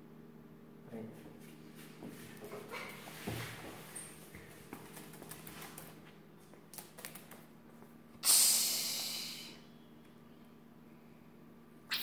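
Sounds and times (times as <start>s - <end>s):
cockatoo hissing: 8.2s - 9.7s.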